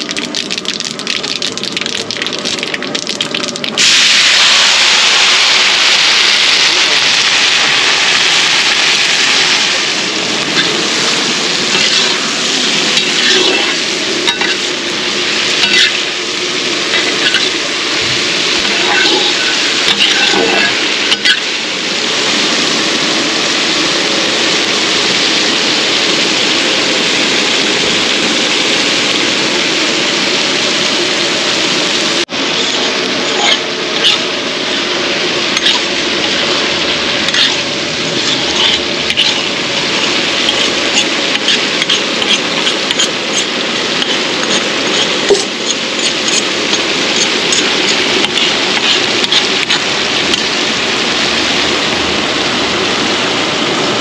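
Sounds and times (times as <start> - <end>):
vegetables sizzling in oil: 0.0 - 54.0
metal ladle scraping pan: 10.4 - 14.8, 15.5 - 16.2, 16.8 - 21.5, 32.6 - 34.8, 35.4 - 50.5.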